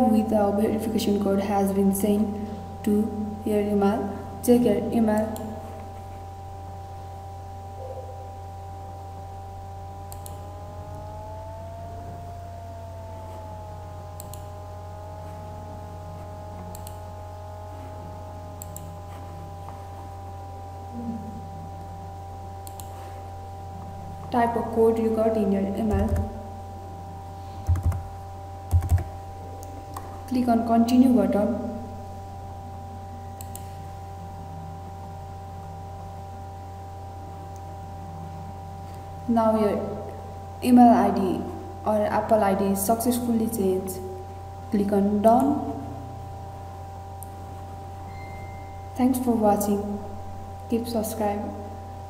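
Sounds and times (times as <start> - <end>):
electrical hum with faint whine: 0.0 - 52.0
computer mouse clicking: 10.1 - 10.4, 14.2 - 14.5, 16.6 - 17.1, 18.6 - 19.8, 22.6 - 23.0, 27.6 - 28.1, 28.7 - 30.1, 33.4 - 33.8
mouse click: 10.1 - 10.4, 14.2 - 14.5, 16.6 - 17.0, 18.6 - 19.2, 22.6 - 23.0, 33.4 - 33.7.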